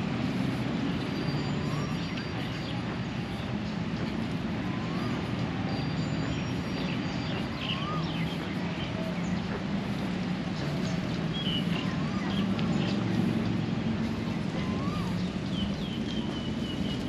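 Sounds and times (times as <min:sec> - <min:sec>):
bird chirps: 0:05.7 - 0:09.5.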